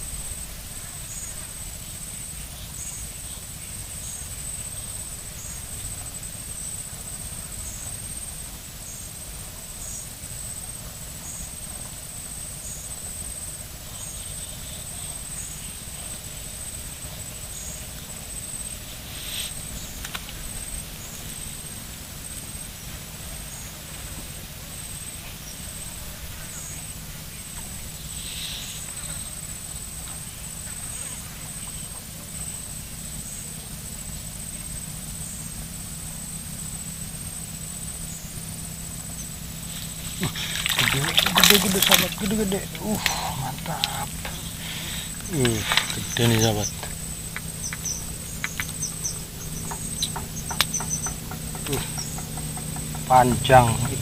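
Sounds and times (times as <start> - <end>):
insect buzzing in pulses: 15.4 - 31.4, 36.3 - 54.0.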